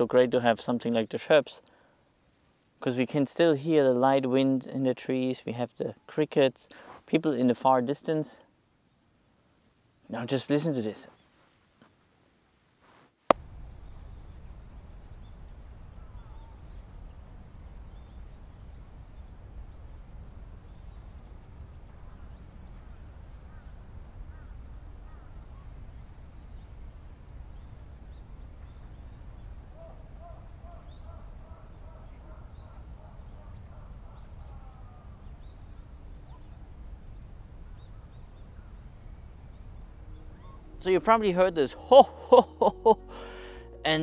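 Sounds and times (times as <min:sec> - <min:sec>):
light wind in trees: 0:00.0 - 0:44.0
crickets droning: 0:13.4 - 0:44.0
faint chirps: 0:34.0 - 0:44.0
distant calls: 0:38.0 - 0:43.8.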